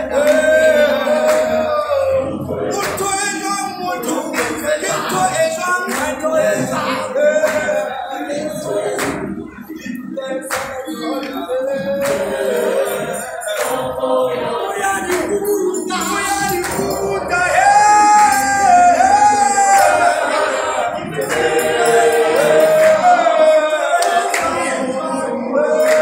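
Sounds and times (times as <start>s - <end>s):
gospel choir singing: 0.0s - 26.0s
lead voice holding long notes: 0.0s - 26.0s
sharp claps or taps: 2.8s - 3.2s, 7.4s - 7.8s, 10.5s - 11.4s.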